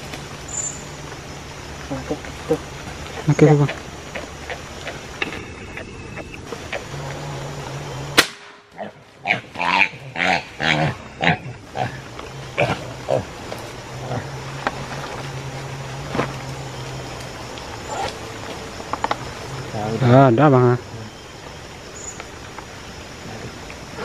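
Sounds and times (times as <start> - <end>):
young wild boar calling: 1.9 - 8.2
sharp crack: 8.1 - 8.8.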